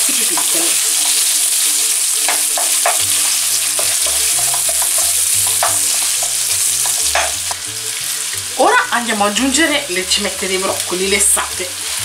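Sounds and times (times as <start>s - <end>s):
sausage sizzling in frying pan: 0.0s - 12.0s.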